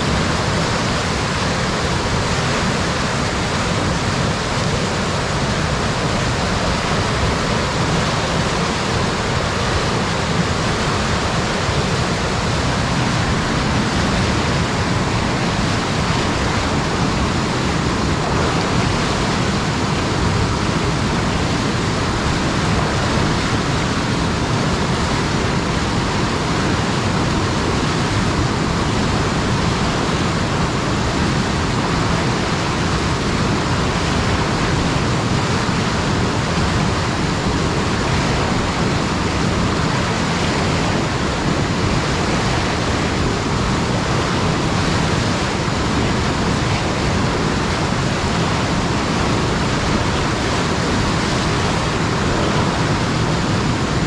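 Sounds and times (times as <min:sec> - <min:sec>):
river rapids rushing: 0:00.0 - 0:54.0.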